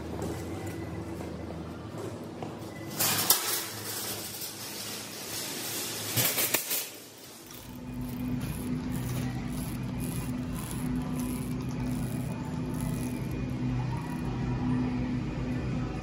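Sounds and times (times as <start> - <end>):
wire shopping carts clattering: 2.9 - 14.2.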